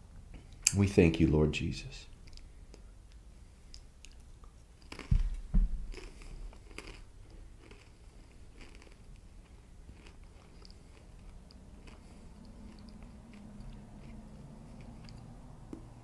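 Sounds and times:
person chewing and crunching bread: 2.2 - 16.0
low thumps: 5.1 - 6.0.

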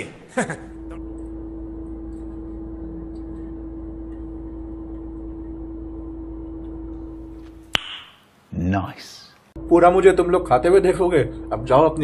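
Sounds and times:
steady mid-pitched tone: 0.6 - 7.7, 9.6 - 12.0
low rumble: 0.7 - 7.7.

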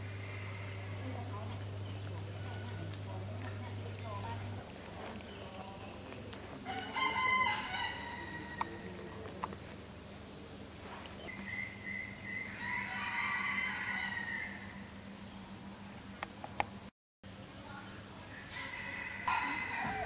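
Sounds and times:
rooster crowing: 6.6 - 9.0, 12.2 - 14.9, 18.3 - 20.0.

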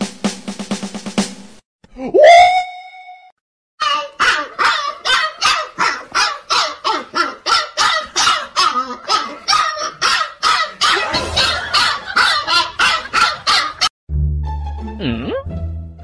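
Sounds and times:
puppy barking: 3.8 - 13.9.

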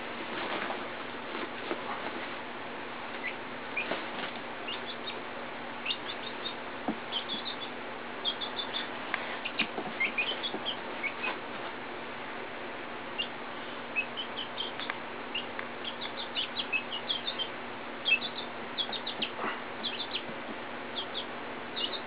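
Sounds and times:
chicks peeping: 3.1 - 11.6, 13.1 - 22.0.

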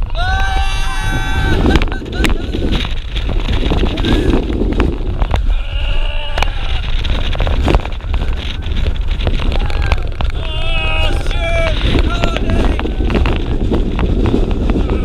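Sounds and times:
riders yelling and screaming: 0.0 - 15.0
wind buffeting microphone: 0.0 - 15.0.

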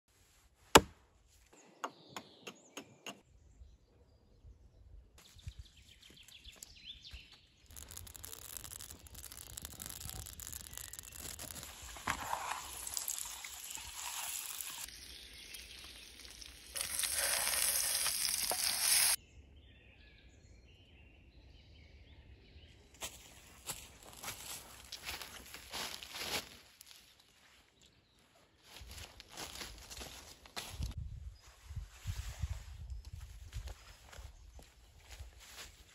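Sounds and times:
potatoes sizzling in oil: 7.8 - 19.2.

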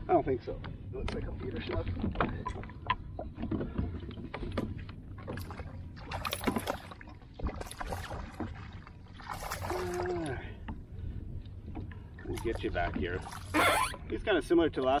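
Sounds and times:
water splashing: 1.3 - 10.5, 11.9 - 14.1.

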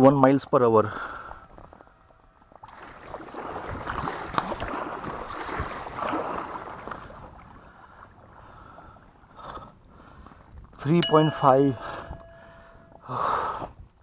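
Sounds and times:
paddle strokes splashing water: 2.5 - 8.4.

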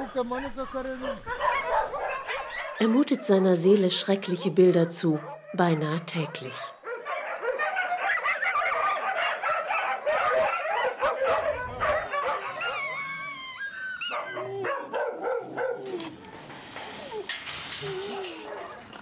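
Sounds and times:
dogs barking and yelping: 0.0 - 3.5, 4.2 - 5.6, 6.2 - 19.0
dogs whining: 6.9 - 19.0.

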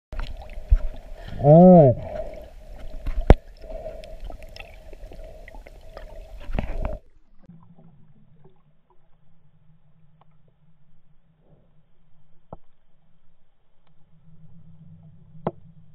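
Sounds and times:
water rushing: 0.1 - 7.1
underwater sloshing hiss: 0.2 - 7.1.

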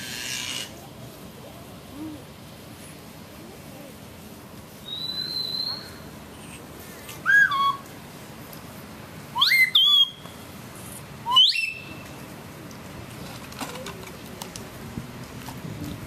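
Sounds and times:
loud whistled calls: 4.8 - 6.1, 7.2 - 7.9, 9.3 - 10.4, 11.2 - 12.1.

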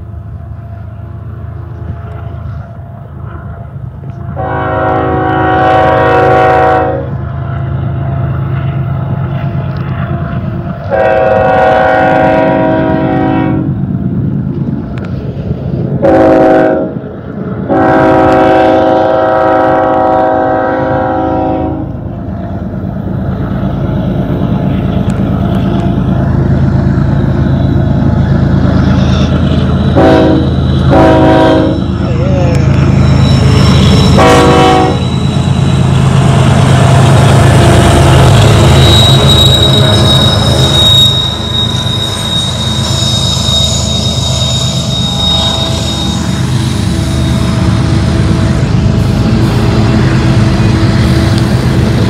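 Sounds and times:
locomotive air horn: 4.3 - 7.2, 10.9 - 13.8, 16.0 - 17.0, 17.7 - 22.0, 30.0 - 31.9, 34.1 - 35.1, 38.3 - 46.4
diesel engine rumble: 20.0 - 38.8.

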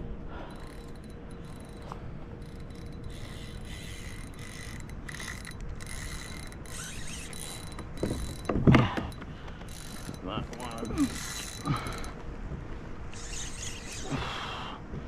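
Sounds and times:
fishing reel whirring: 0.3 - 8.6, 9.7 - 12.2, 13.1 - 14.4.

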